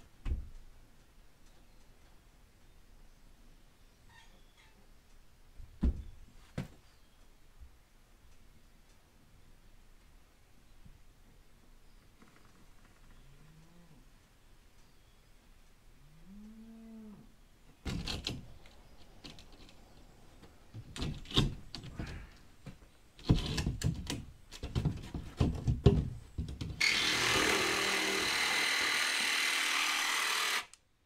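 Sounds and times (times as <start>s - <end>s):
power tool cutting: 26.8s - 30.8s.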